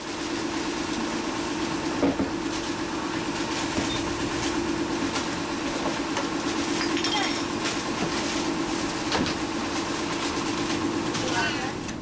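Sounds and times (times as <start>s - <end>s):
boat engine drone: 0.0s - 12.0s
food packets rustling and knocking: 2.0s - 11.4s.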